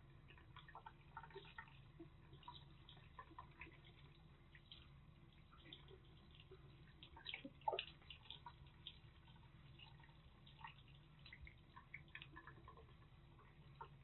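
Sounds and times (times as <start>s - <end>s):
water drips and splashes: 0.0s - 14.0s
tap trickling into a sink: 0.1s - 14.0s.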